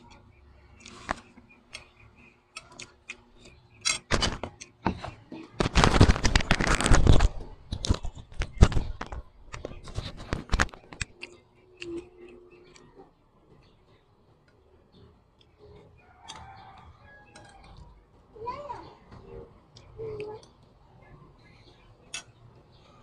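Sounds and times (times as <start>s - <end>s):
person chewing and crunching food: 10.1s - 14.5s.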